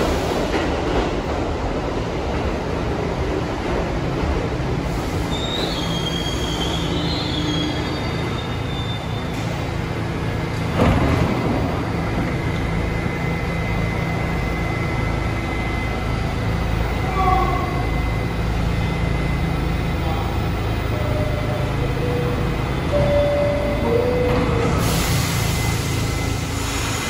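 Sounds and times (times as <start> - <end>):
subway train rumbling on rails: 0.0 - 27.0.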